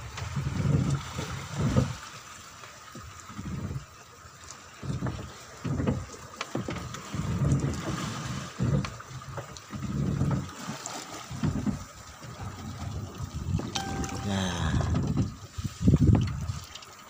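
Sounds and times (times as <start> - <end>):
waves slapping against boat hull: 0.0 - 13.8.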